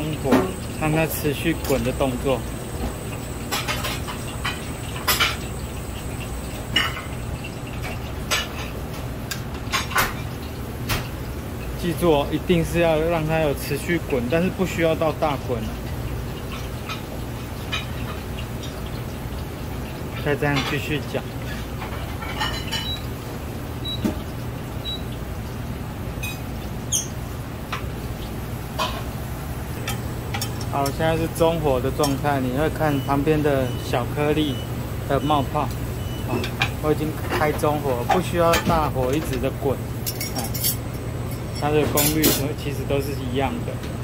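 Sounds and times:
boiling pot rumble: 0:00.0 - 0:44.0
metal tongs clinking on pot: 0:29.8 - 0:32.3, 0:36.3 - 0:42.6
tongs clinking against pot: 0:32.0 - 0:32.3, 0:40.0 - 0:42.5.

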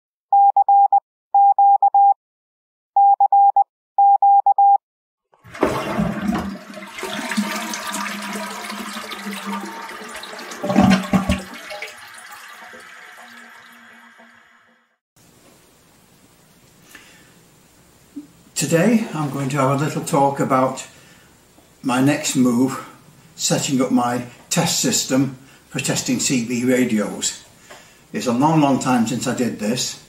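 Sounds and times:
short beeps: 0:00.3 - 0:02.2, 0:03.0 - 0:04.8
toilet flushing: 0:05.3 - 0:15.0.

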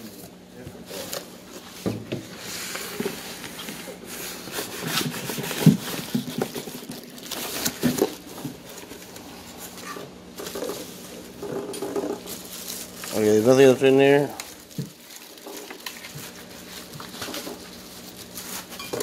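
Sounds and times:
cardboard box and paper rustling: 0:02.4 - 0:09.8, 0:12.2 - 0:18.8.

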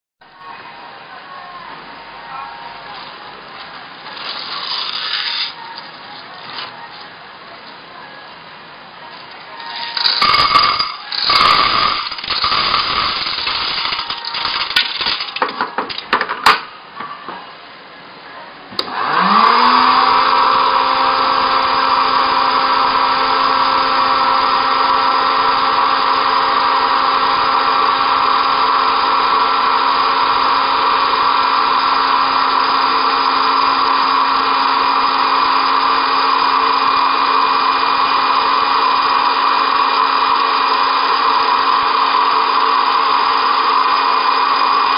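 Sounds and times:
popcorn maker fan whining: 0:00.3 - 0:16.3, 0:18.8 - 0:44.9
corn kernels rattling: 0:04.1 - 0:05.6, 0:09.4 - 0:15.6.

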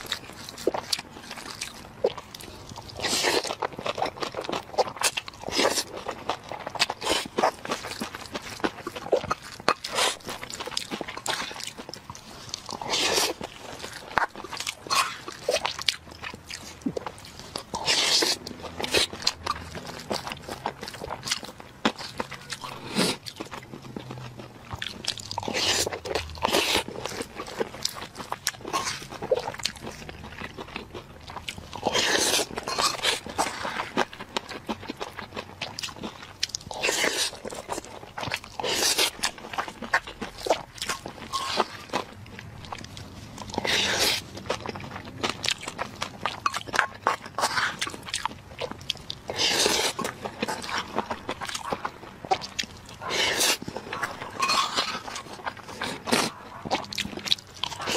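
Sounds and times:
wet chewing and mouth clicks: 0:00.0 - 0:57.9.

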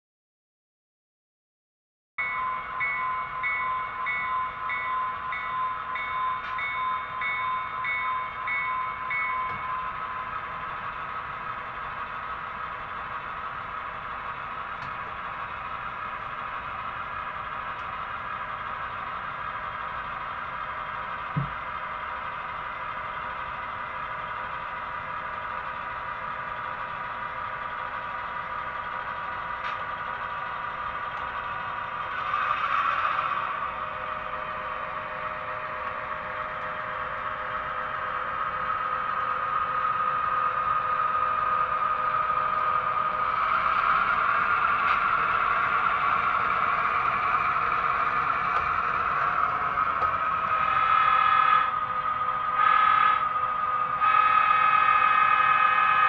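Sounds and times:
locomotive bell ringing: 0:02.2 - 0:11.2
diesel engine drone: 0:02.2 - 0:56.0.

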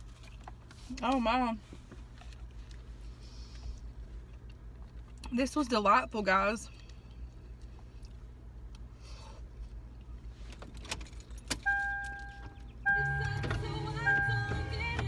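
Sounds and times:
car engine idling hum: 0:00.0 - 0:15.0
music playing: 0:12.9 - 0:15.0.

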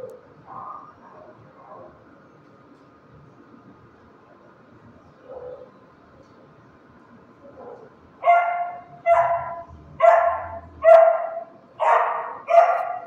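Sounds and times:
dog barking: 0:00.5 - 0:01.9, 0:05.2 - 0:05.7, 0:07.6 - 0:13.0.

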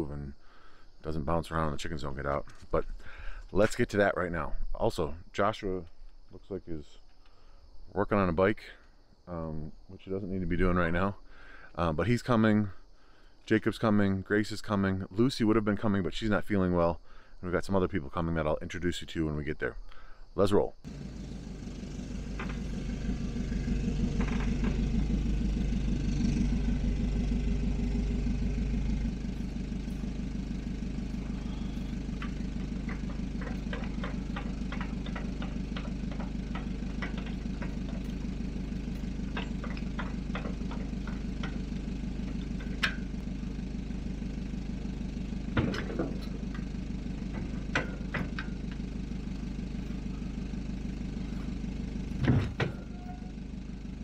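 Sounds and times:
van engine idling: 0:20.9 - 0:54.0
metallic clicks and clanks: 0:30.9 - 0:43.3, 0:45.5 - 0:50.0.

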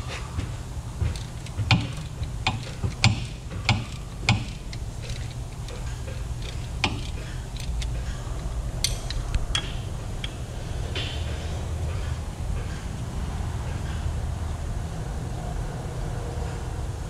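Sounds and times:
steady low hum: 0:00.0 - 0:17.0
wrench clicking on bolts: 0:01.0 - 0:10.4.

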